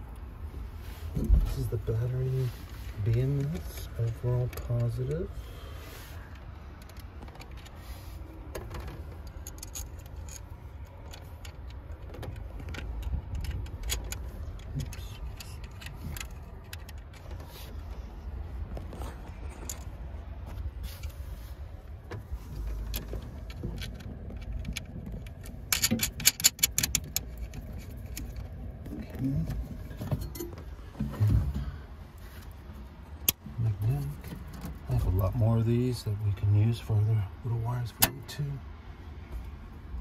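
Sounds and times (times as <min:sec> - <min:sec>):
steady low rumble: 0:00.0 - 0:40.0
metal parts clicking and clinking: 0:08.7 - 0:17.5, 0:22.7 - 0:28.6.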